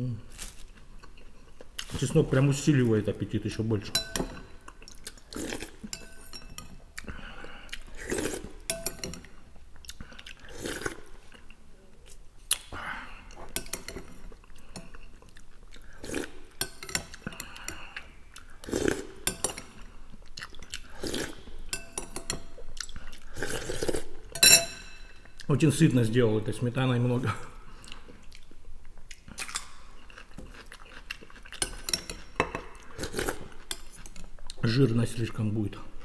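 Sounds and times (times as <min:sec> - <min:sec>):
spoon clinking on glass bowl: 0:03.9 - 0:04.5, 0:08.7 - 0:09.3, 0:24.4 - 0:25.1
chewing: 0:09.2 - 0:12.7, 0:13.3 - 0:21.4, 0:22.4 - 0:24.1, 0:27.7 - 0:34.6.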